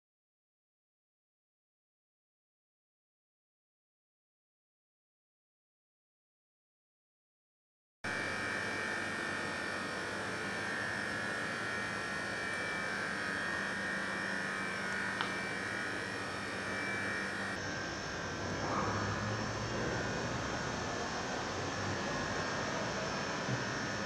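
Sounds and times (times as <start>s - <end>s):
mechanical drone with hiss: 8.1s - 24.0s.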